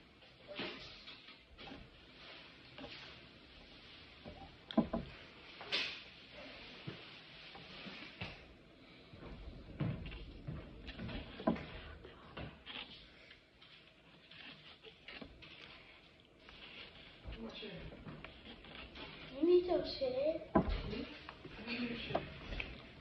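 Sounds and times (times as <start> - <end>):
chewing: 10.0 - 19.5
plastic fork scraping a plate: 10.0 - 23.0.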